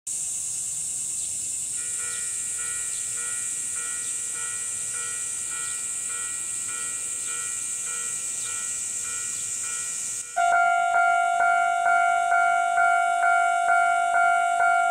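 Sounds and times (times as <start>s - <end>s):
cicadas sizzling: 0.1s - 14.9s
level crossing two-tone bell: 10.4s - 14.9s.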